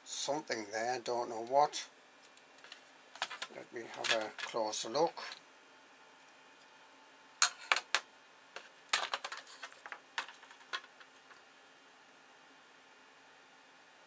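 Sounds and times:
taps and rattles: 0:07.4 - 0:11.4.

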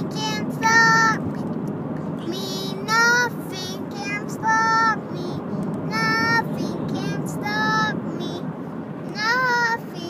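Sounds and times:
low rumble of car cabin: 0:00.0 - 0:10.0.

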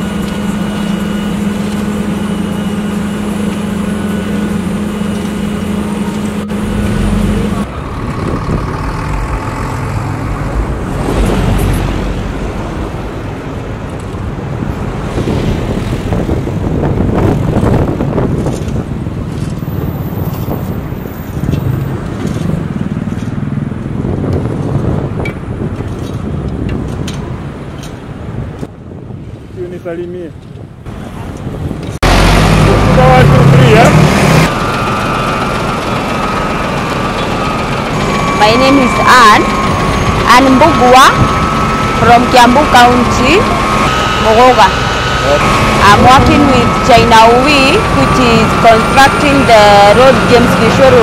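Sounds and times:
rough machine noise: 0:00.0 - 0:28.0, 0:30.9 - 0:51.0
diesel engine humming: 0:00.0 - 0:29.5, 0:30.6 - 0:51.0
wind-like rumble: 0:05.1 - 0:32.3.

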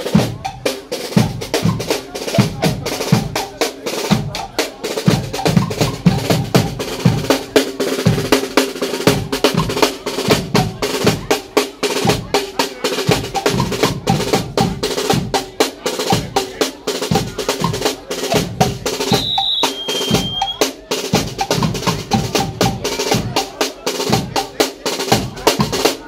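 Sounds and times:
drum section playing: 0:00.0 - 0:26.0
high steady whistling tone: 0:19.1 - 0:20.6.

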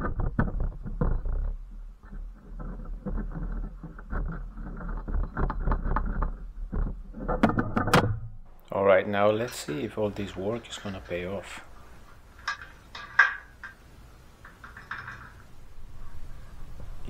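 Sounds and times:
steel parts scraping and clinking: 0:09.2 - 0:16.7.

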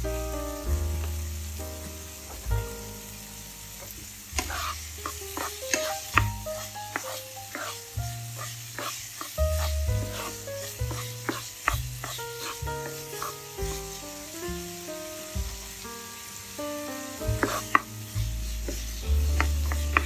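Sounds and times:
background music with bass line: 0:00.0 - 0:08.8, 0:09.4 - 0:20.0
food sizzling in a pan: 0:00.0 - 0:20.0
spatula scraping a pan: 0:03.8 - 0:14.6, 0:17.3 - 0:20.0.

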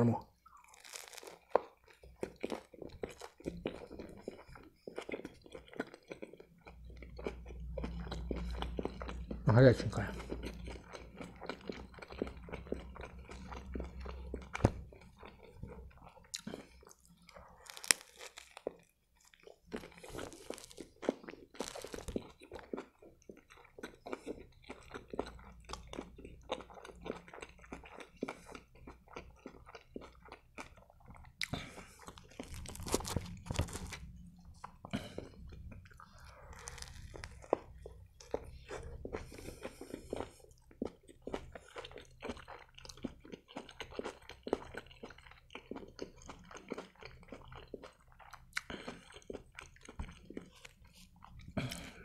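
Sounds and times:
chewing food: 0:00.0 - 0:52.0
biting into wrap: 0:00.6 - 0:03.9, 0:17.6 - 0:22.3, 0:31.4 - 0:34.1, 0:36.1 - 0:37.8.

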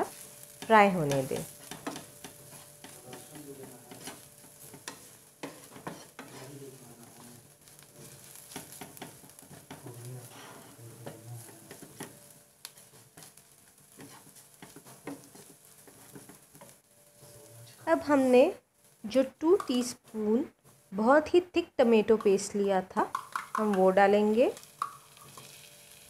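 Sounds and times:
wooden spatula scraping frying pan: 0:00.0 - 0:17.5, 0:25.1 - 0:26.0
oil sizzling: 0:00.0 - 0:26.0
spatula tapping pan: 0:00.5 - 0:06.5, 0:07.8 - 0:16.8, 0:19.5 - 0:19.9, 0:22.1 - 0:23.9, 0:24.6 - 0:25.5.

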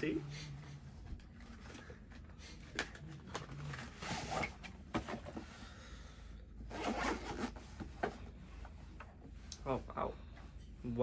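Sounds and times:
cardboard box scraping and rustling: 0:03.7 - 0:04.7
case zipper opening: 0:06.7 - 0:07.6.

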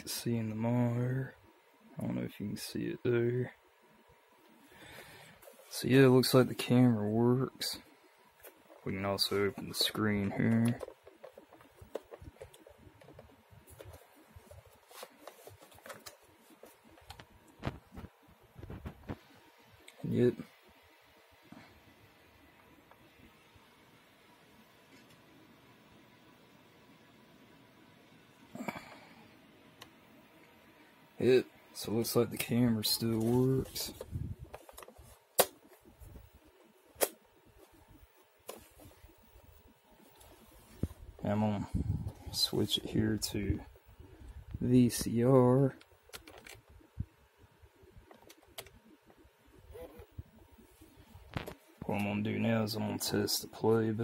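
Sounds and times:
camcorder handling noise: 0:36.9 - 0:37.2, 0:46.1 - 0:46.7.

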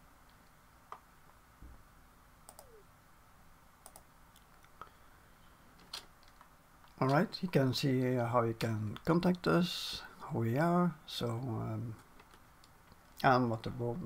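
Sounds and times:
faint computer mouse clicks: 0:02.5 - 0:02.8, 0:03.8 - 0:04.8.

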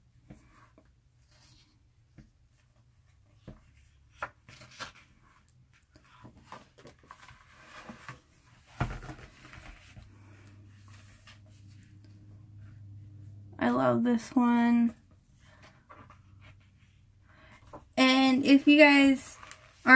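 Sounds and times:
rustling of book pages: 0:00.1 - 0:13.2, 0:18.5 - 0:19.9
page turned with soft thump: 0:03.2 - 0:12.1.

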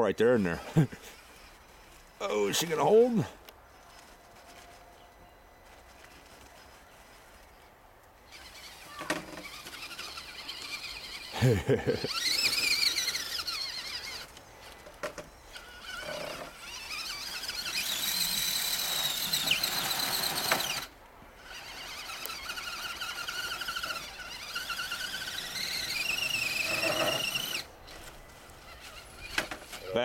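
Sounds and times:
electric motor whine: 0:08.3 - 0:29.9.

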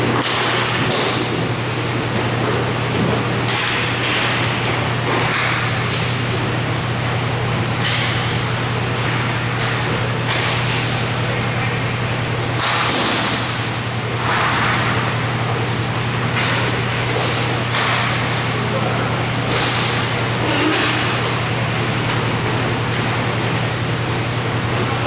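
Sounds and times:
skates and sticks scraping floor: 0:12.6 - 0:13.5.

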